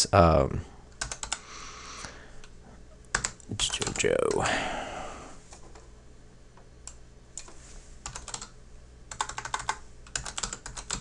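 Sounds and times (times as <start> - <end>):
typing on computer keyboard: 1.0 - 1.4, 3.1 - 4.4, 8.0 - 8.5, 9.1 - 11.0.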